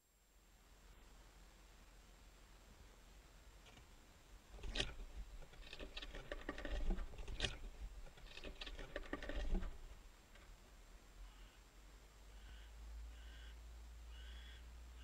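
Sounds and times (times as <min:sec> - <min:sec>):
claws scratching on wooden boards: 0:04.5 - 0:10.0.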